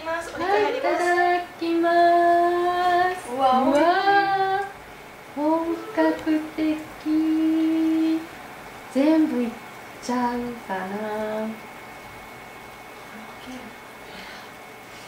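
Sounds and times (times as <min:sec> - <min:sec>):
woman singing long notes: 0:00.0 - 0:08.3.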